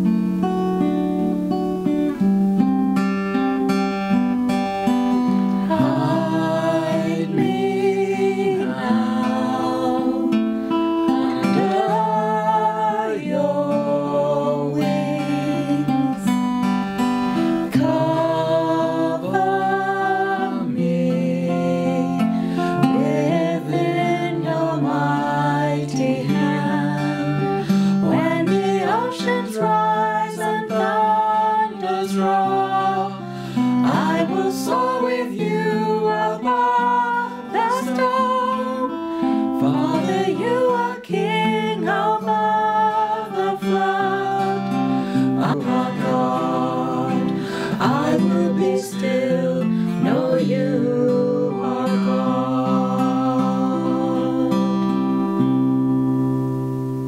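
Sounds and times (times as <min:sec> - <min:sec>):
acoustic guitar plucked notes: 0:00.0 - 0:57.0.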